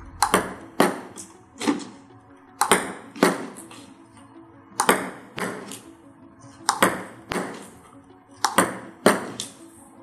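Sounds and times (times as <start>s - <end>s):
table tennis ball pinging: 0.2s - 2.0s, 2.6s - 3.8s, 4.8s - 5.8s, 6.6s - 7.8s, 8.4s - 9.6s.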